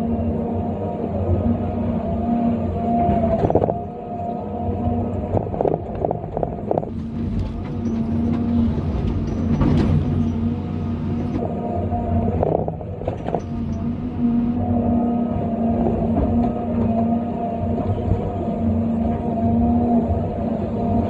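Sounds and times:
diesel engine under load: 0:00.0 - 0:21.0
hydraulic whine: 0:00.0 - 0:21.0.

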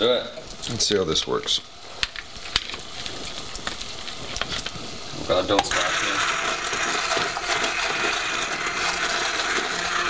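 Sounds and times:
immersion blender whining: 0:05.6 - 0:10.0.

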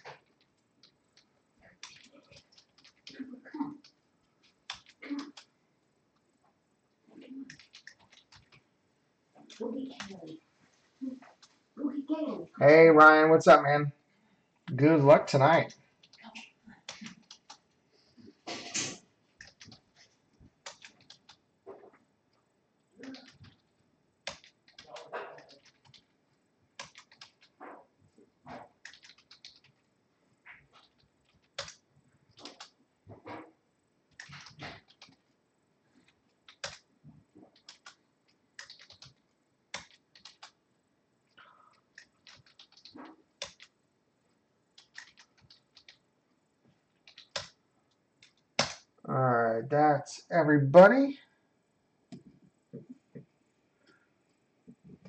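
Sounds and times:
typing on keyboard: 0:00.0 - 0:05.5, 0:07.5 - 0:08.6, 0:16.8 - 0:17.6, 0:19.4 - 0:19.9, 0:20.6 - 0:21.4, 0:23.0 - 0:26.1, 0:26.8 - 0:27.6, 0:28.8 - 0:29.8, 0:30.6 - 0:32.8, 0:34.1 - 0:35.2, 0:36.4 - 0:38.0, 0:38.6 - 0:40.6, 0:41.7 - 0:43.8, 0:44.8 - 0:46.0, 0:47.0 - 0:47.6
computer keyboard key clicks: 0:26.8 - 0:27.5, 0:28.8 - 0:29.7, 0:38.6 - 0:39.2, 0:41.9 - 0:43.7, 0:44.8 - 0:46.0, 0:47.0 - 0:47.6.

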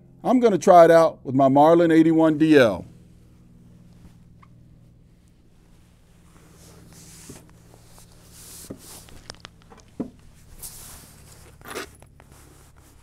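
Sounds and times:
jacket rustling: 0:03.0 - 0:13.0
scraping rustle: 0:03.0 - 0:13.0.

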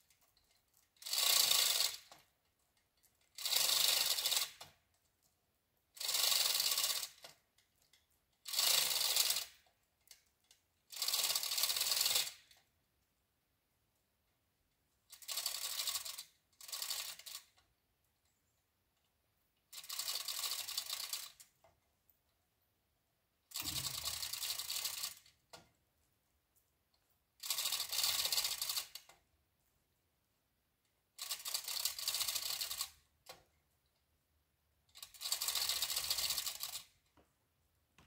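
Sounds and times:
ratchet clicking: 0:00.5 - 0:02.3, 0:03.2 - 0:04.8, 0:06.0 - 0:12.7, 0:15.1 - 0:17.6, 0:19.7 - 0:21.5, 0:23.5 - 0:25.4, 0:27.4 - 0:29.2, 0:31.2 - 0:33.4, 0:34.9 - 0:37.0.

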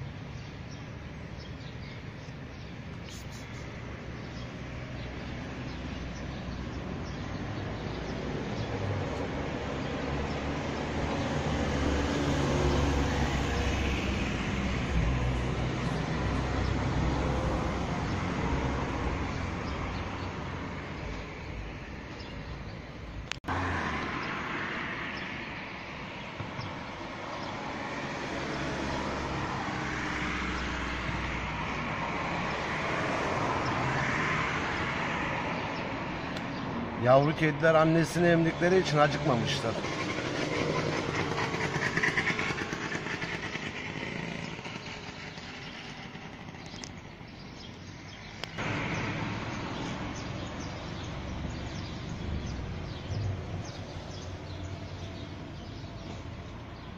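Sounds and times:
vehicle passing: 0:03.1 - 0:22.2, 0:23.5 - 0:56.9.

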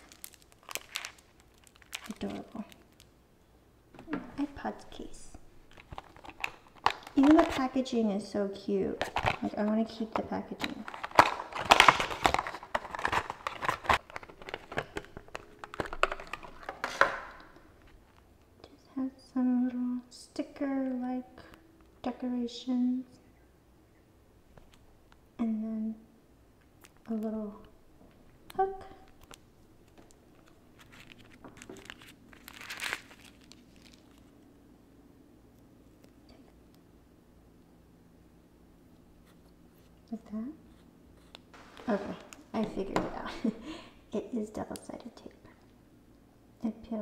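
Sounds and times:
packaging rustle: 0:00.0 - 0:03.1, 0:05.7 - 0:07.7, 0:09.0 - 0:09.6, 0:10.6 - 0:18.2, 0:29.0 - 0:34.4
plastic crinkling: 0:00.0 - 0:03.2, 0:04.4 - 0:07.8, 0:09.0 - 0:18.2, 0:28.6 - 0:34.4.

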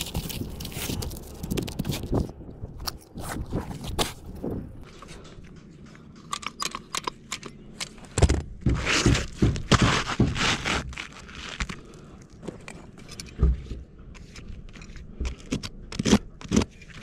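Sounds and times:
crackly scraping and tearing: 0:00.0 - 0:06.2, 0:07.8 - 0:13.3, 0:14.2 - 0:17.0
roof shingles clicking and scraping: 0:07.8 - 0:13.4.

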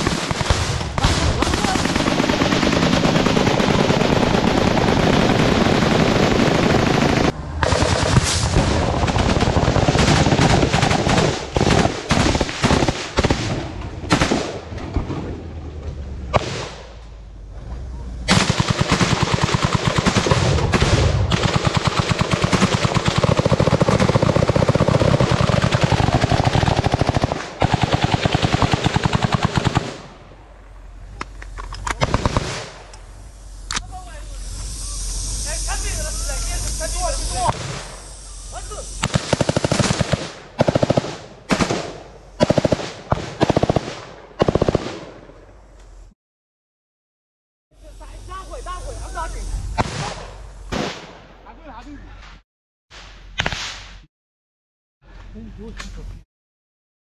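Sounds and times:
automatic gunfire: 0:00.0 - 0:14.6, 0:18.3 - 0:30.1, 0:32.0 - 0:32.8, 0:39.0 - 0:45.1.

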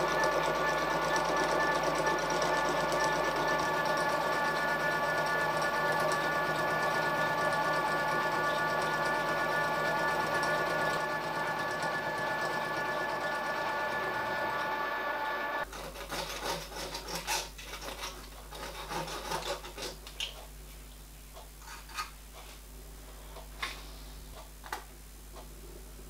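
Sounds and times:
milling machine whining: 0:00.0 - 0:15.7
deburring blade scraping metal: 0:15.6 - 0:20.0.

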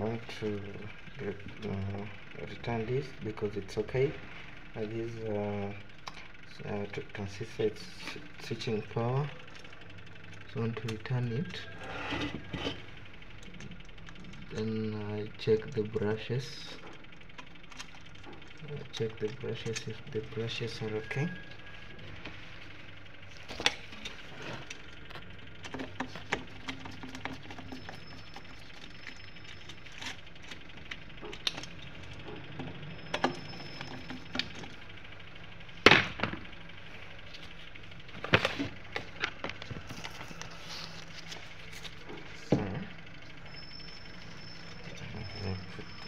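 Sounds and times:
low steady hum: 0:00.0 - 0:46.0
clicks and knocks of handling parts: 0:23.4 - 0:34.8.

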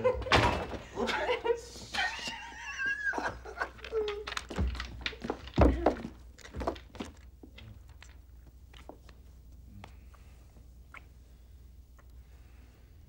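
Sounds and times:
faint clicks and rustles: 0:03.4 - 0:11.1.

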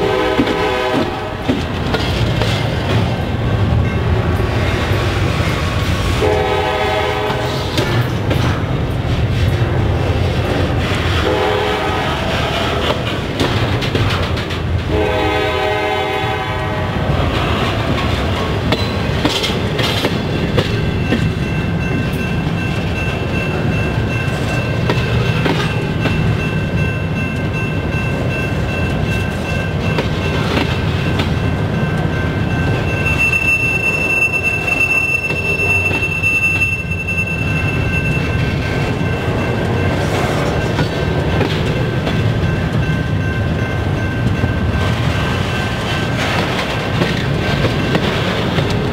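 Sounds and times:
train horn: 0:00.0 - 0:01.4, 0:06.1 - 0:07.7, 0:11.1 - 0:13.0, 0:14.9 - 0:17.8
wheels clicking over rail joints: 0:00.0 - 0:04.9, 0:12.3 - 0:15.1, 0:17.1 - 0:48.9
freight train rumbling past: 0:00.0 - 0:48.9
high thin wheel squeal: 0:33.0 - 0:38.4.

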